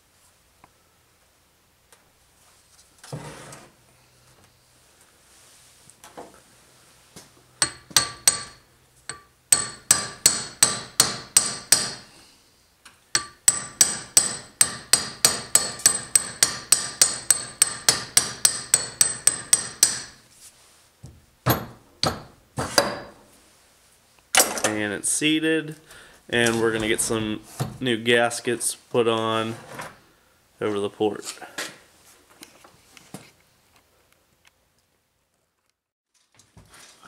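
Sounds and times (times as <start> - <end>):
hammer tapping on metal: 7.6 - 12.1, 13.2 - 20.2, 21.5 - 23.2.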